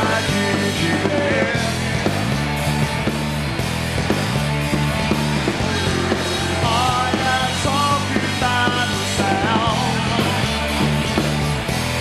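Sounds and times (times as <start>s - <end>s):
person singing: 0.0s - 1.8s, 5.6s - 10.6s
live rock band: 0.0s - 12.0s.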